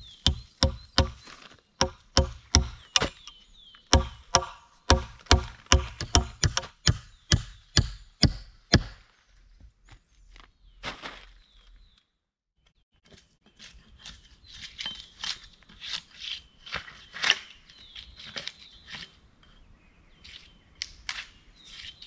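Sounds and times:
hatchet chopping wood: 0.1s - 1.2s, 1.8s - 9.0s.

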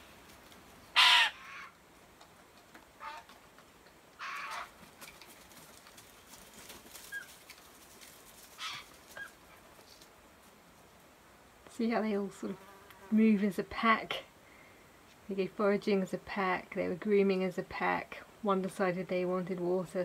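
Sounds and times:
birds giving short calls: 0.9s - 1.7s.

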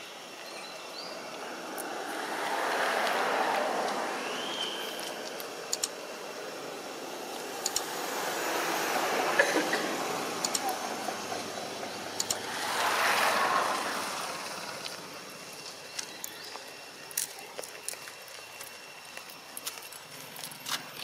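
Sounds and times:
even rushing hiss: 0.0s - 20.9s
sharp clicks: 5.0s - 6.0s, 7.6s - 7.9s, 10.4s - 10.7s, 12.2s - 12.5s.

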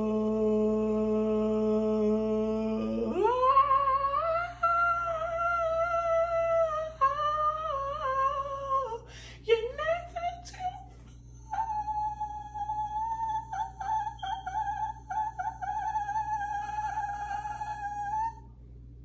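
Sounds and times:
man singing unaccompanied: 0.0s - 3.8s.

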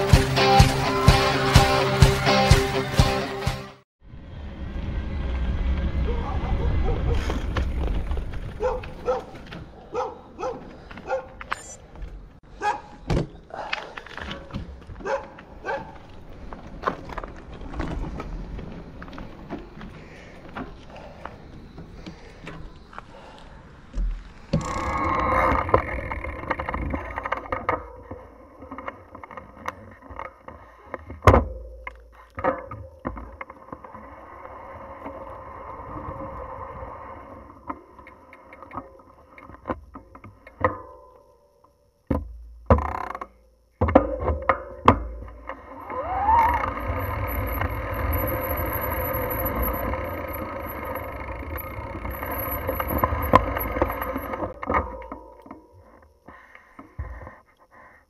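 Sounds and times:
tyres on asphalt: 0.0s - 58.0s
bicycle knocking and rattling: 42.0s - 56.1s.

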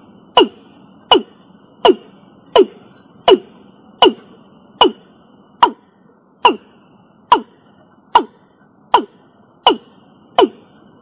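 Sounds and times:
bird calling deep notes: 0.0s - 11.0s.

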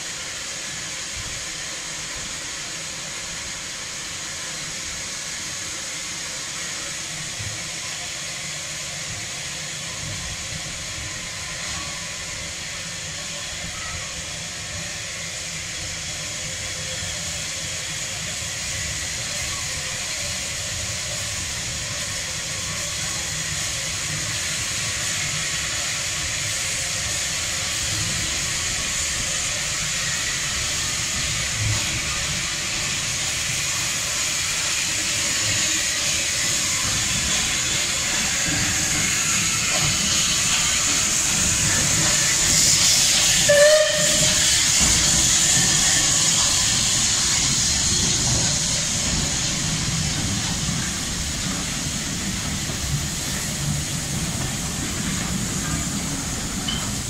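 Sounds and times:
steam hissing: 0.0s - 57.0s
locomotive exhaust rumble: 15.0s - 57.0s.

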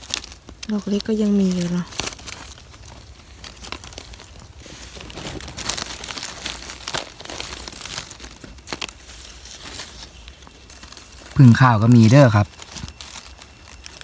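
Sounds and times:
dry leaves rustling: 0.0s - 14.0s.

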